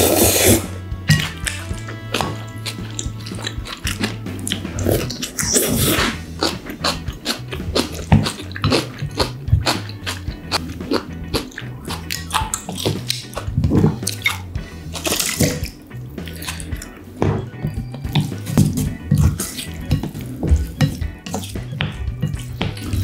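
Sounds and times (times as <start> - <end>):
person slurping noodles: 0.0 - 0.8, 2.2 - 16.8
background music: 0.0 - 23.0
wet mouth clicks: 1.2 - 16.9.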